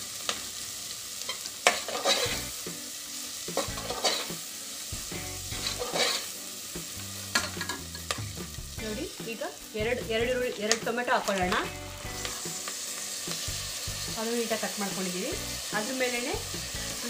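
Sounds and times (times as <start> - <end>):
food sizzling in hot oil: 0.0 - 17.0
metal spatula scraping pot: 1.7 - 2.5, 3.6 - 4.3, 5.6 - 6.3.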